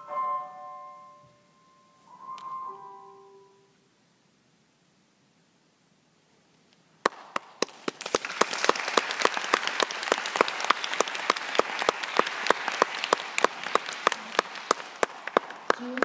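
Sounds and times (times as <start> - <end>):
audience applauding: 7.0 - 16.0
loud single claps: 7.0 - 16.0.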